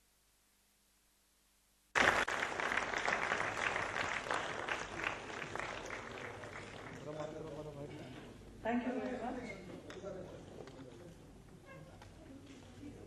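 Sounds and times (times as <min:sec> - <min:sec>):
audience applauding: 0:02.0 - 0:07.7.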